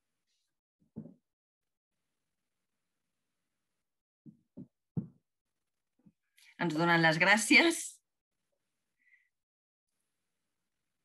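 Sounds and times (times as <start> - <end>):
dull thumps: 4.2 - 5.3.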